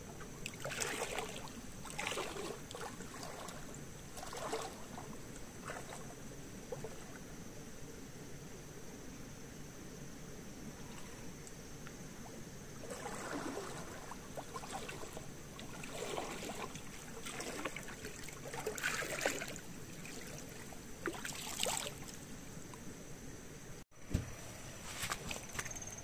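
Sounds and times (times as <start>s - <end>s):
water sloshing and splashing: 0.0s - 7.4s, 12.1s - 22.4s.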